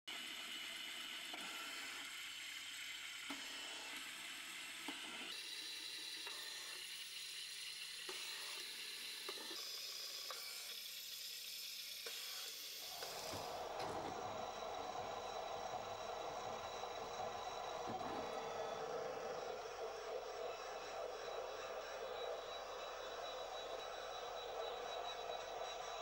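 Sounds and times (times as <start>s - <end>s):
pen plotter whining: 12.8s - 26.0s.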